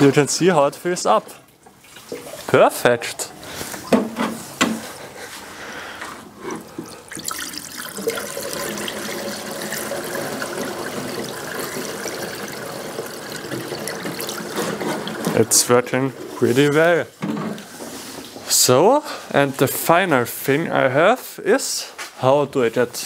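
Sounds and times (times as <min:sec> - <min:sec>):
water running into sink: 0:06.6 - 0:15.8.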